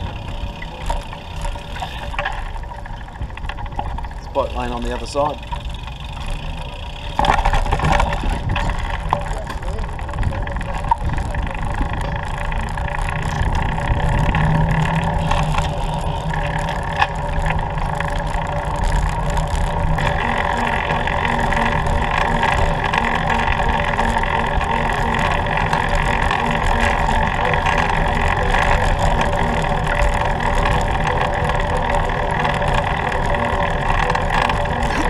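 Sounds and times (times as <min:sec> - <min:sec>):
steady hum: 0:00.0 - 0:35.0
traffic and road noise: 0:00.0 - 0:35.0.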